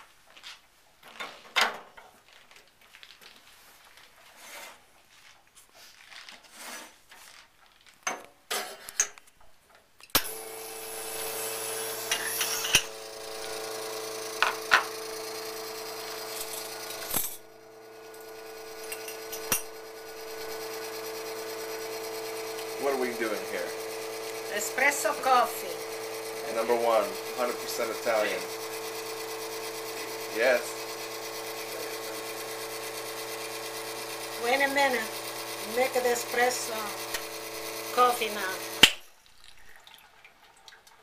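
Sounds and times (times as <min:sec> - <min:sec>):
espresso machine pump humming: 0:10.2 - 0:39.0.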